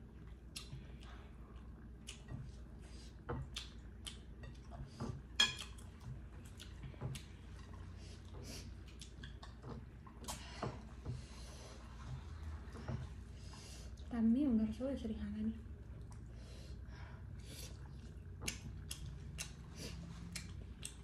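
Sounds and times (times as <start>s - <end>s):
eating sounds: 0.2s - 10.4s, 15.8s - 21.0s
fork tapping ceramic plates: 5.4s - 5.8s.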